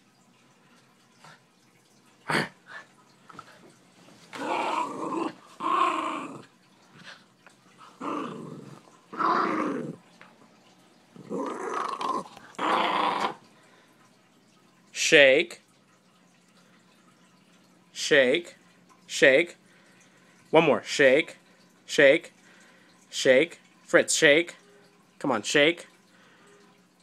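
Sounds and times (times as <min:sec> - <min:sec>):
dog growling: 0:04.3 - 0:06.5, 0:07.8 - 0:10.0, 0:11.2 - 0:13.4.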